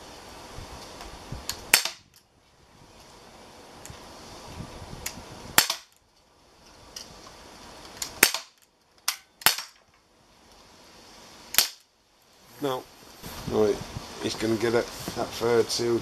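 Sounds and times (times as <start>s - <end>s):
air pistol shots: 1.6s - 2.1s, 5.6s - 6.0s, 8.0s - 9.8s, 11.5s - 11.8s.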